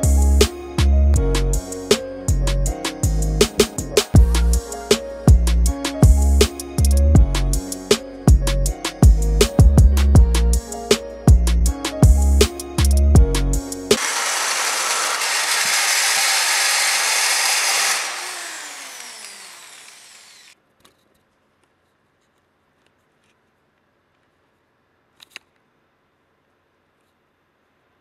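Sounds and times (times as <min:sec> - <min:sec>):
drill hole saw cutting metal: 0:14.0 - 0:20.6.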